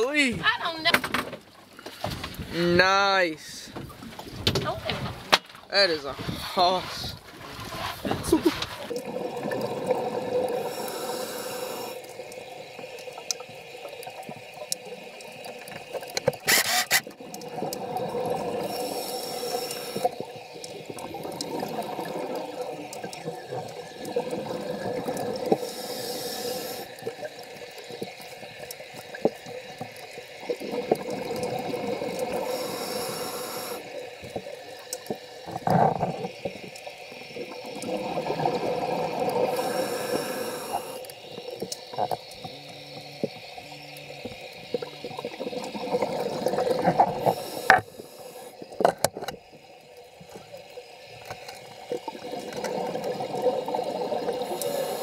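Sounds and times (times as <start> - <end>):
exhaust bubbles rushing: 8.2 - 10.7, 17.2 - 18.8, 20.2 - 25.6, 30.4 - 32.5, 37.5 - 39.6, 44.8 - 47.3, 52.0 - 54.5
regulator breath hiss: 10.6 - 12.0, 18.6 - 20.1, 25.5 - 27.0, 32.3 - 33.9, 39.5 - 41.6, 47.2 - 48.7, 54.4 - 55.0.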